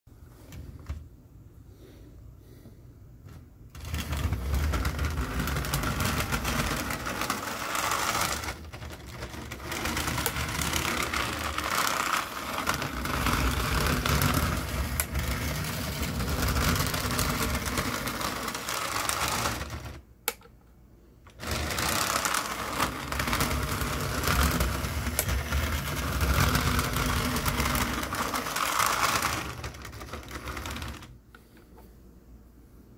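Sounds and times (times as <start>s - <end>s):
model train motor whirring: 3.8s - 20.0s, 21.3s - 31.1s.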